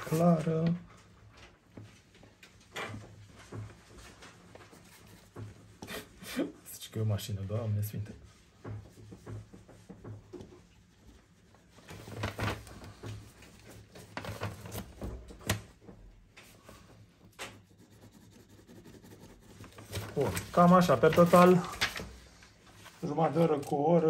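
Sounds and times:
drawing tool scratching on paper: 0:17.5 - 0:20.0.

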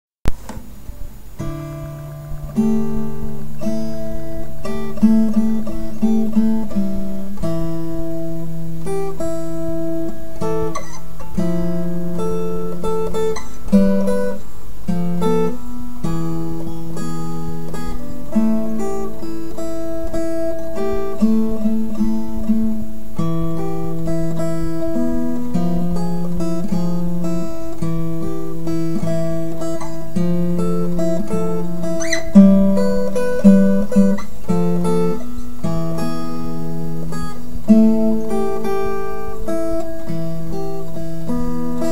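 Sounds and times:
acoustic guitar music: 0:00.2 - 0:41.9.

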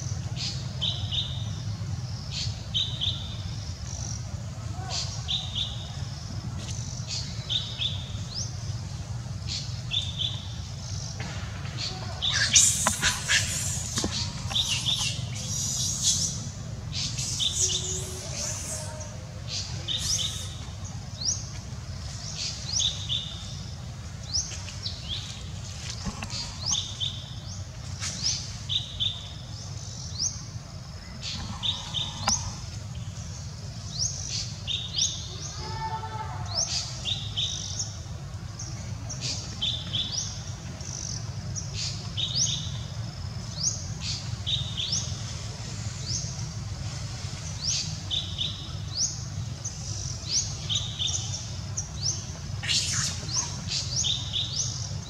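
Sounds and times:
steady low hum: 0:00.0 - 0:35.1
bird chirping: 0:11.8 - 0:21.5, 0:47.5 - 0:55.0.

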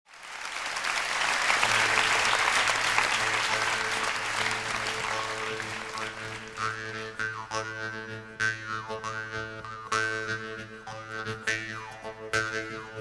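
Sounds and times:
audience applauding: 0:00.1 - 0:07.0.

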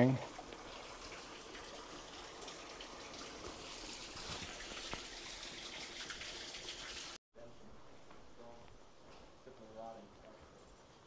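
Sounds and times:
small waterfall trickling: 0:00.0 - 0:07.2.

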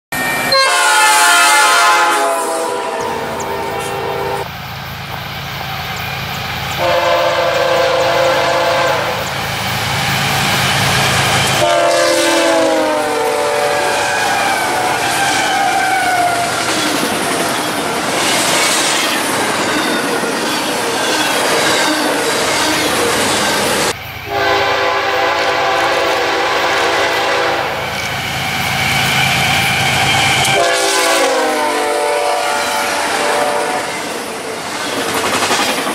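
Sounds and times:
locomotive horn blasts: 0:00.4 - 0:04.5, 0:06.8 - 0:09.3, 0:11.5 - 0:16.4, 0:24.3 - 0:27.9, 0:30.4 - 0:34.0.

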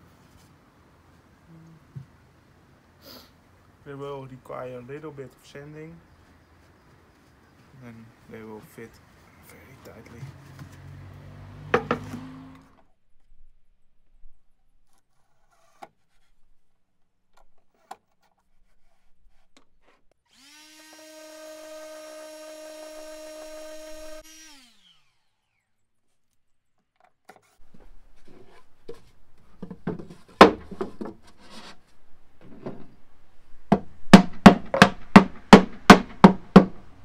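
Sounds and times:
sharp knocks and clatter: 0:11.7 - 0:12.2, 0:27.7 - 0:31.4, 0:33.7 - 0:36.9
orbit sander motor: 0:20.3 - 0:25.8.

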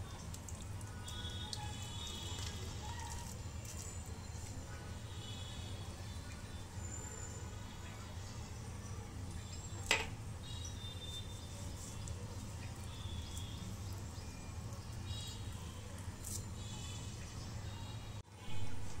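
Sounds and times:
faint high chirping: 0:08.4 - 0:18.2.

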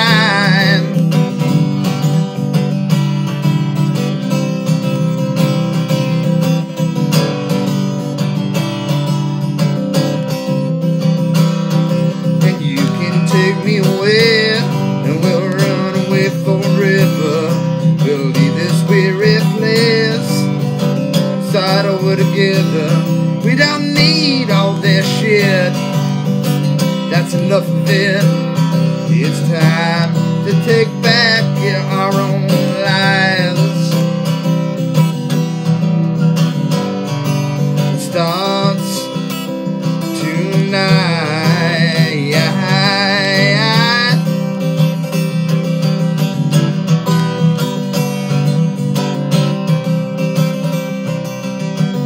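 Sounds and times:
man singing: 0:00.0 - 0:02.0, 0:11.8 - 0:34.5, 0:37.6 - 0:44.8
guitar strumming: 0:00.0 - 0:52.0.

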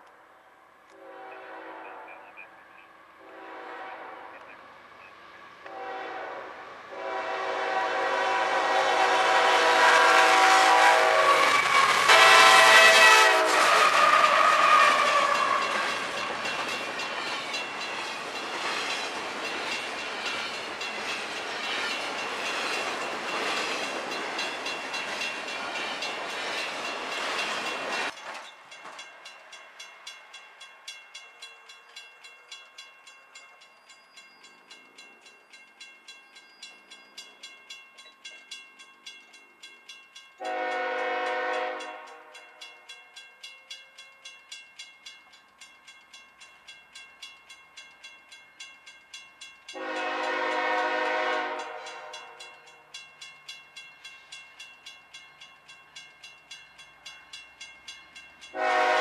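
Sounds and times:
freight train rumbling past: 0:00.4 - 0:59.0
train horn: 0:00.9 - 0:04.7, 0:05.6 - 0:16.4, 0:40.4 - 0:42.5, 0:49.7 - 0:52.6, 0:58.5 - 0:59.0
railroad crossing bell dinging: 0:06.9 - 0:59.0.

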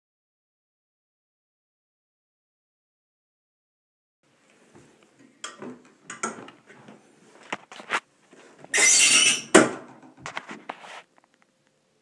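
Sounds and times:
plastic squeaking and rubbing: 0:08.6 - 0:11.1
plastic scraping rub: 0:10.2 - 0:11.2.

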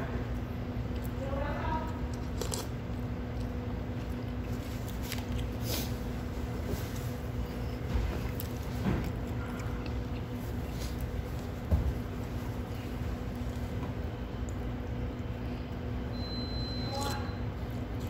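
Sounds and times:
room hum with low rumble: 0:00.0 - 0:18.0.

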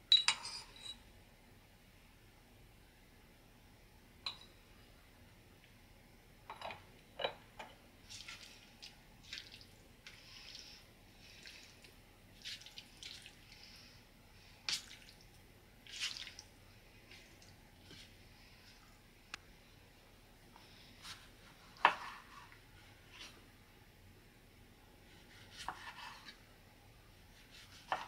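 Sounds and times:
hand kneading wet meat: 0:08.0 - 0:13.7, 0:14.7 - 0:18.8.

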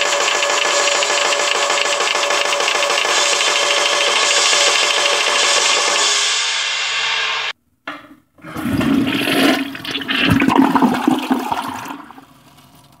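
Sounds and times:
toilet flushing: 0:08.4 - 0:13.0.

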